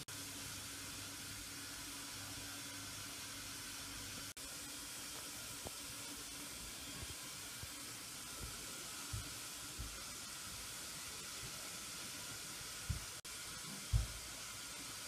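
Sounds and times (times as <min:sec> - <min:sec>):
steady hiss: 0:00.0 - 0:15.0
soft low thumps: 0:13.9 - 0:14.2.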